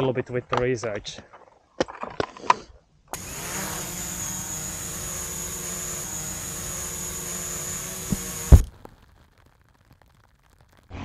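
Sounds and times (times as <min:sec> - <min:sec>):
drone propellers whining: 0:03.2 - 0:08.7.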